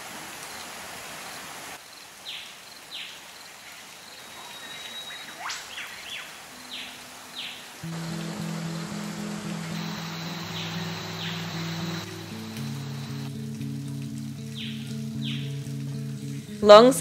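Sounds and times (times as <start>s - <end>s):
waterfall rushing: 4.0s - 16.6s
birds whistling: 4.2s - 13.3s, 14.6s - 15.5s.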